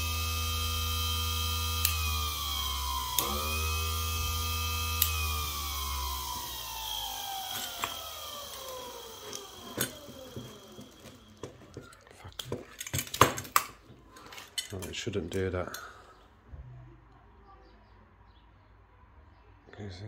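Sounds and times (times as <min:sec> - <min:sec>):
electric motor whining: 0:00.0 - 0:12.0.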